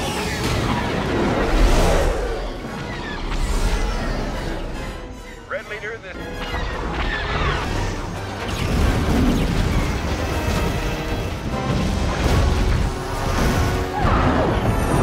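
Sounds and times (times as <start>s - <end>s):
orchestral film score: 0.0s - 15.0s
explosions and deep booms: 7.3s - 15.0s.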